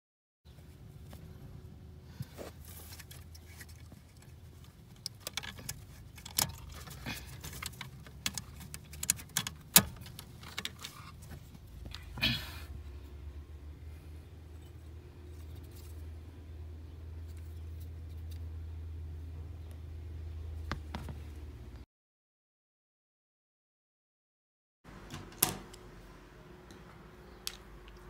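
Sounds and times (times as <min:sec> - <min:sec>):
low hum: 0:09.4 - 0:21.8.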